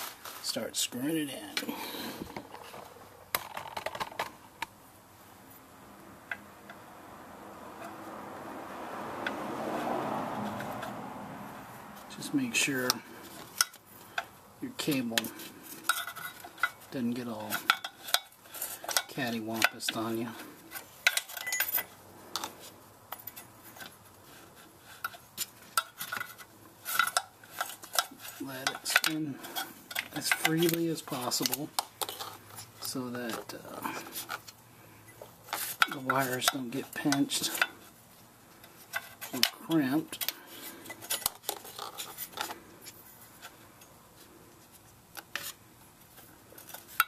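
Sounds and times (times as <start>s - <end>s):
metallic clicks and scraping: 12.0s - 47.0s.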